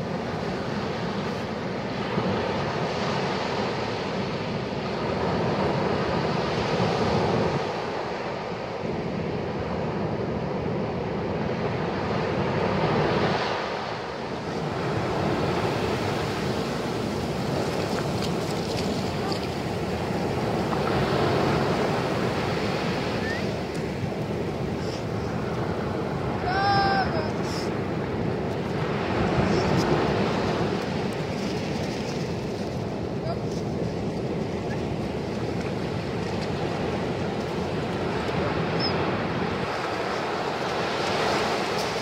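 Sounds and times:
waves breaking on beach: 0.0s - 42.0s.

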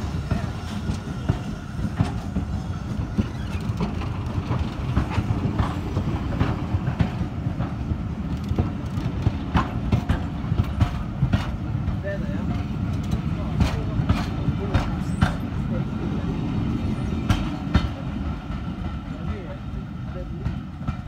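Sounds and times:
wheels clicking over rail joints: 0.0s - 15.8s
train rumbling past: 0.0s - 21.0s.

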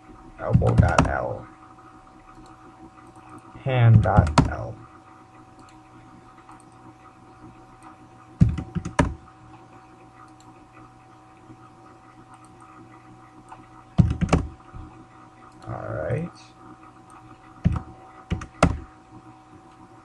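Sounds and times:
faint steady hum: 0.0s - 20.0s
computer keyboard typing: 0.4s - 1.3s, 2.3s - 4.7s, 7.8s - 9.3s, 13.5s - 14.6s, 17.1s - 18.9s.

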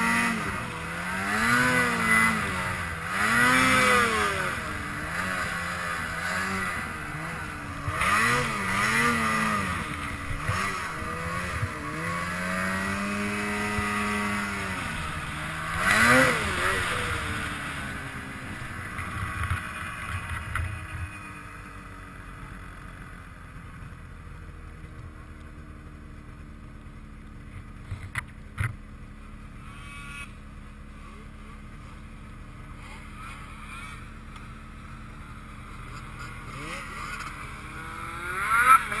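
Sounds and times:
snowmobile engine revving: 0.0s - 21.3s, 29.3s - 39.0s
snowmobile engine hum: 0.0s - 39.0s.

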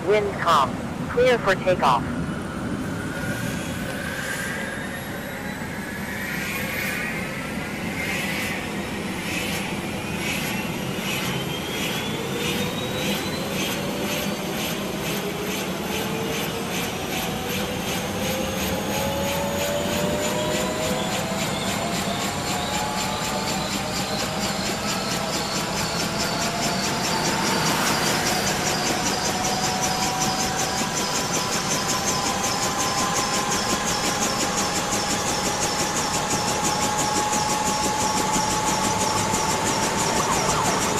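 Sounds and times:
helicopter rotor beat: 0.0s - 40.9s
helicopter turbine whine: 0.0s - 40.9s.

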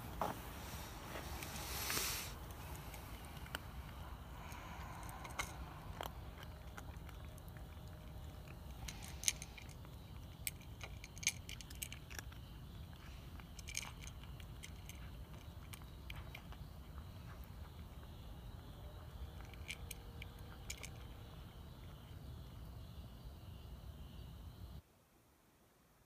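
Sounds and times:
cat chewing food: 2.4s - 21.2s.

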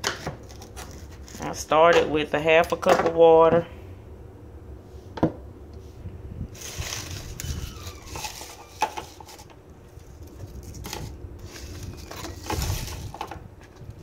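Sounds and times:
rustling and handling: 0.0s - 2.0s, 5.8s - 14.0s
kitchen items knocking and clicking: 0.0s - 3.6s, 7.9s - 9.5s, 10.8s - 13.8s.

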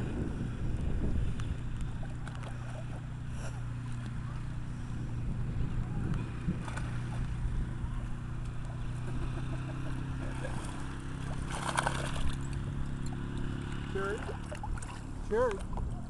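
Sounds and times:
steady low rumble: 0.0s - 16.0s
dog splashing through water: 9.0s - 15.8s.

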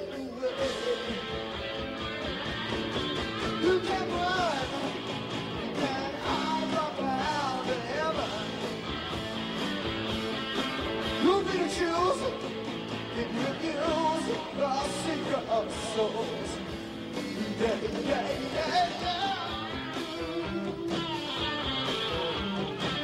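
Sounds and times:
lead singer singing: 0.0s - 1.6s, 3.4s - 8.8s, 11.0s - 21.0s
drums: 0.0s - 23.0s
electric guitar: 0.0s - 23.0s.

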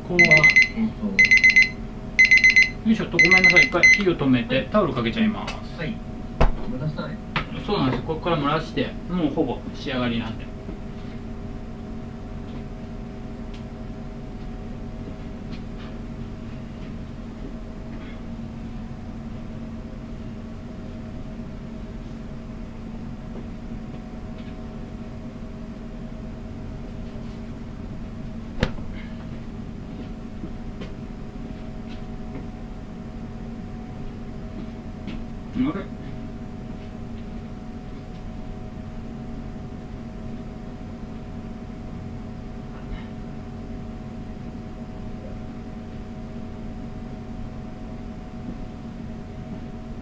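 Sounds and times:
machine hum with held tones: 0.0s - 4.0s.

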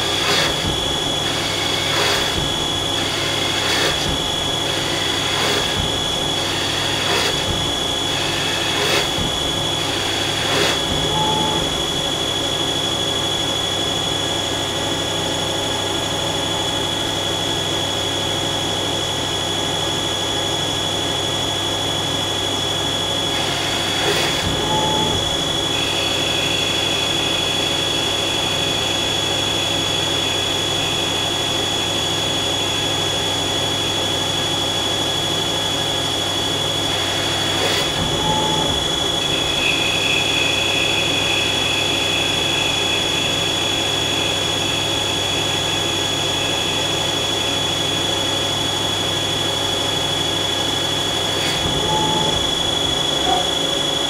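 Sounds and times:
lathe spindle hum and whine: 0.0s - 54.0s
low cutting whine: 0.0s - 54.0s.

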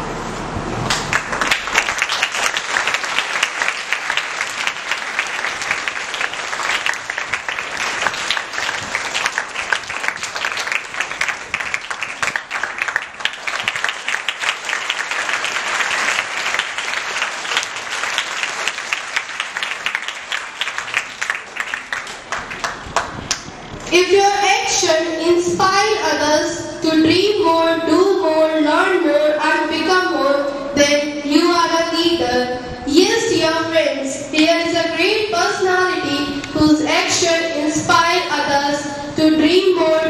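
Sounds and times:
audience applauding: 0.9s - 23.5s.

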